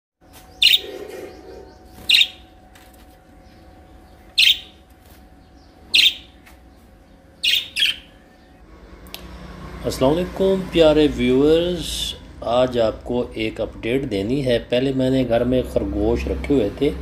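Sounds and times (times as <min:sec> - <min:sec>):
soft bird twittering: 0:00.2 - 0:02.6, 0:03.3 - 0:08.7
budgerigar high chirps: 0:00.3 - 0:02.5, 0:04.4 - 0:04.8, 0:05.6 - 0:06.4, 0:07.4 - 0:08.2.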